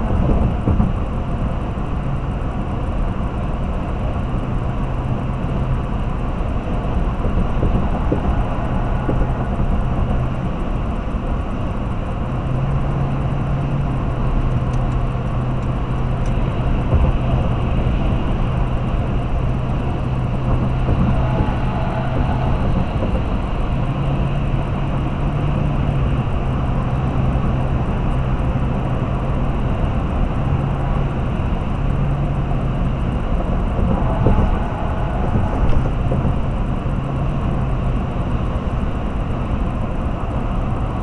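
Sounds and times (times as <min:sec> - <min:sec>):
vehicle bump: 0:00.0 - 0:01.8, 0:06.5 - 0:12.0, 0:12.9 - 0:27.4, 0:30.0 - 0:38.6
engine drone: 0:00.0 - 0:41.0
road noise: 0:00.0 - 0:41.0.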